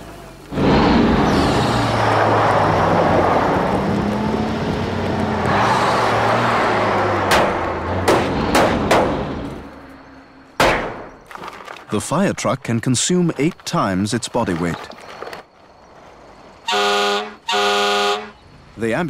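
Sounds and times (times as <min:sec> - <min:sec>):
sharp knocks: 0:07.3 - 0:09.3, 0:10.6 - 0:11.2.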